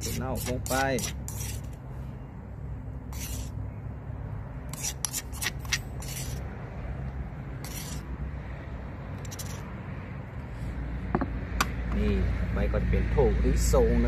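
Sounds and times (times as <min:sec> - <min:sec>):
kitchen utensil scraping food: 0:00.0 - 0:01.7, 0:03.1 - 0:03.6, 0:04.7 - 0:06.4, 0:07.6 - 0:08.0, 0:09.2 - 0:09.7.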